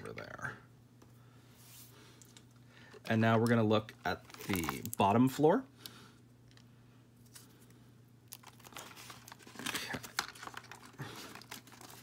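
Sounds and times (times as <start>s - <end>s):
plastic packaging crinkling: 4.0s - 5.4s, 8.3s - 12.0s.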